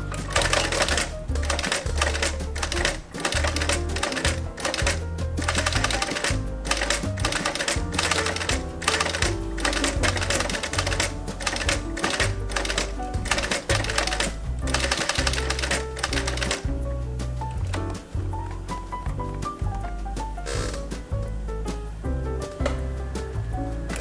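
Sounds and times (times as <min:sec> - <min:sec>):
sewing machine clicking: 0:00.0 - 0:16.7
background music with beat: 0:00.0 - 0:24.0.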